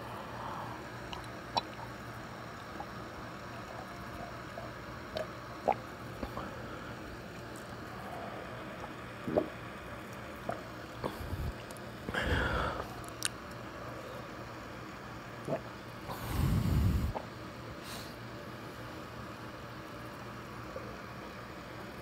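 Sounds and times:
low room hum: 0:00.0 - 0:22.0
person swallowing: 0:09.2 - 0:09.6.

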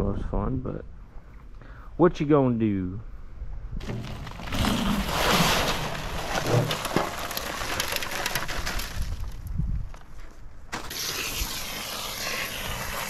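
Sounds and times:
concrete mix pouring into wheelbarrow: 0:03.8 - 0:09.5, 0:10.8 - 0:13.0.

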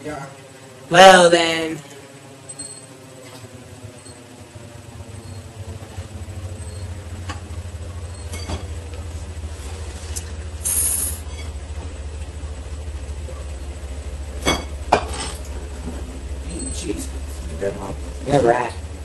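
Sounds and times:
steady low hum: 0:00.0 - 0:19.0
brief hiss: 0:10.6 - 0:11.2.

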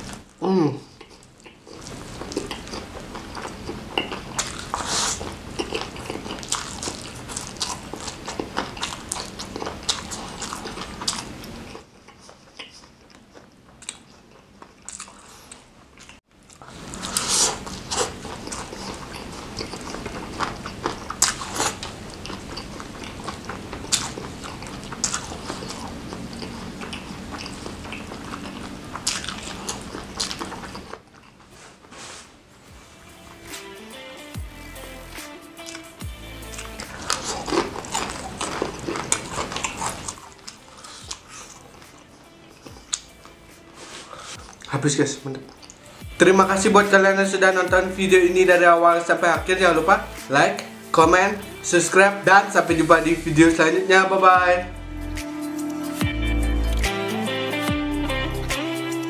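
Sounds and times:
wet chewing of noodles: 0:00.0 - 0:32.5, 0:35.6 - 0:46.2
crunching fried chicken: 0:01.0 - 0:31.5, 0:36.5 - 0:45.8.

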